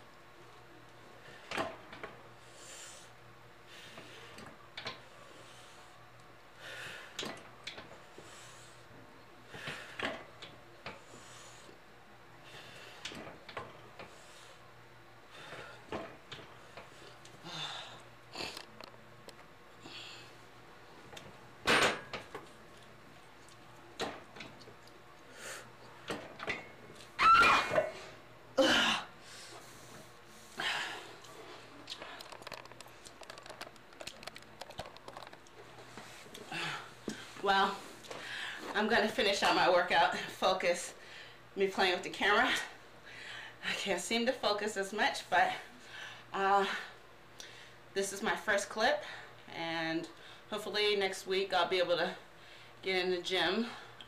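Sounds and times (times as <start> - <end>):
brief squeak: 27.2 - 27.8
woman breathing hard: 28.6 - 31.3.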